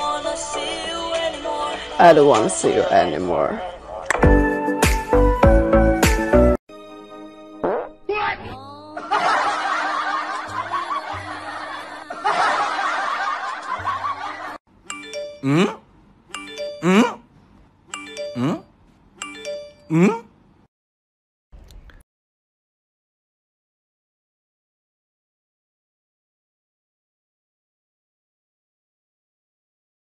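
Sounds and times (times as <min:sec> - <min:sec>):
snickering laughter: 0:09.0 - 0:14.6.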